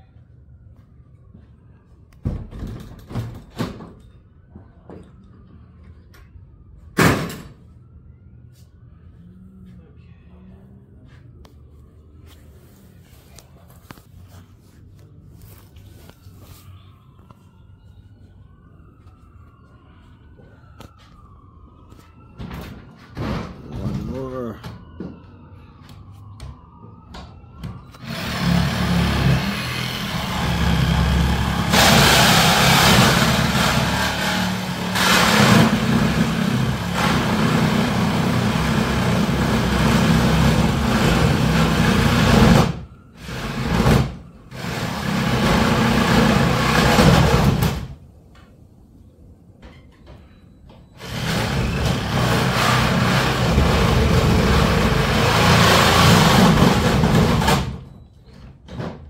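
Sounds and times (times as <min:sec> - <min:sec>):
reciprocating saw cutting: 0:28.0 - 0:47.2, 0:51.0 - 0:57.2.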